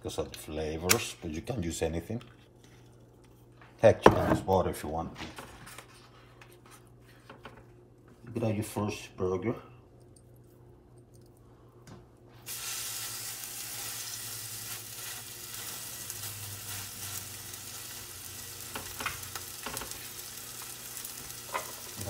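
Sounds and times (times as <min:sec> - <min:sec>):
meat patty sizzling in oil: 0:12.4 - 0:22.0.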